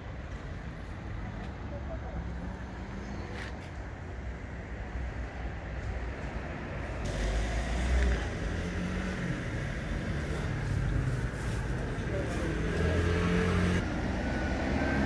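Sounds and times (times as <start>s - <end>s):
street traffic rumble: 0.0s - 15.0s
vehicle passing by: 7.1s - 15.0s.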